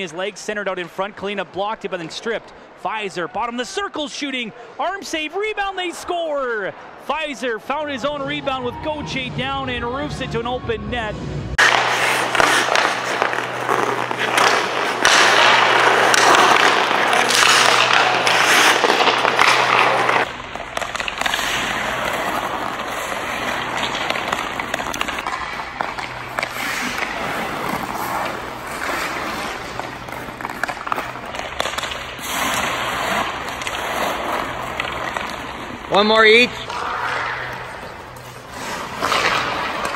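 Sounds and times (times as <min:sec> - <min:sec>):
stick tapping puck: 0:11.6 - 0:35.9
skate blades scraping ice: 0:11.6 - 0:39.9.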